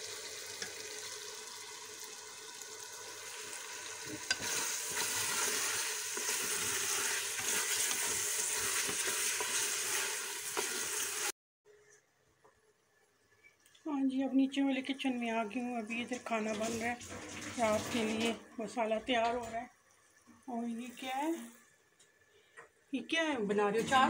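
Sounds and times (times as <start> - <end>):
lentils sizzling in hot oil: 0.0 - 11.4, 13.3 - 22.2
spoon stirring in metal pot: 4.0 - 11.1.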